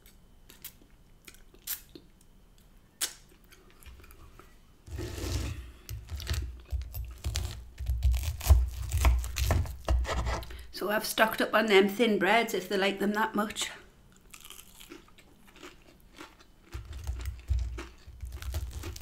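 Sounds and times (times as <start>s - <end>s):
knife sawing through food: 4.9s - 5.7s
knife scraping wooden board: 4.9s - 6.4s, 8.5s - 10.5s
chewing close to microphone: 14.2s - 19.0s.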